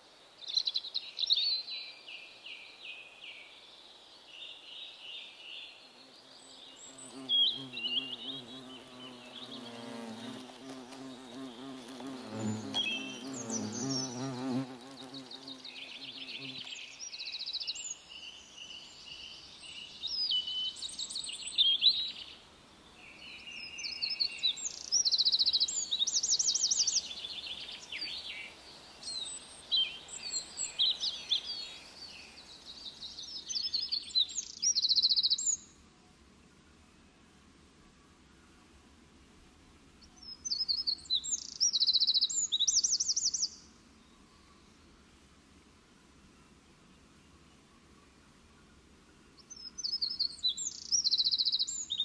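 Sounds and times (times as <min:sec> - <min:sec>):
songbirds singing: 0:00.0 - 0:35.8, 0:39.9 - 0:45.2, 0:46.0 - 0:52.0
flying insect buzzing: 0:07.0 - 0:16.7.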